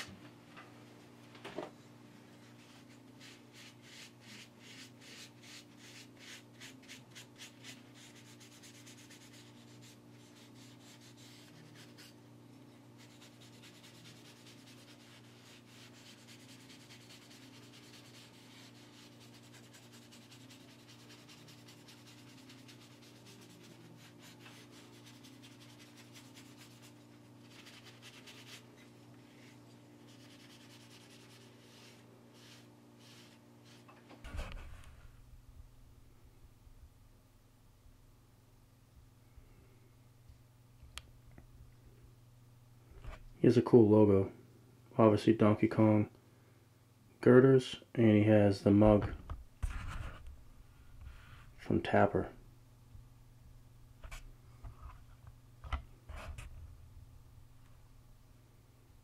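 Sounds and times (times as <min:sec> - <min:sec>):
cloth rubbing wooden spoon: 0:13.0 - 0:34.9.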